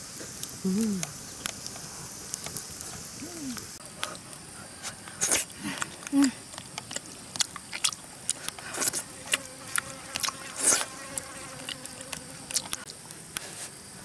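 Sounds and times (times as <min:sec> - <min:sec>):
insect buzzing: 0:00.0 - 0:14.0
chewing with lip smacks: 0:00.4 - 0:13.7
breathy sounds: 0:03.2 - 0:06.5.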